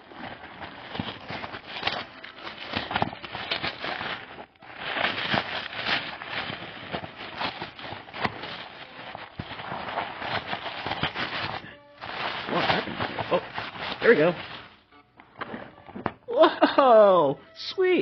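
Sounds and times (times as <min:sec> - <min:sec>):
gift-wrap paper crinkling and tearing: 0:00.0 - 0:15.8.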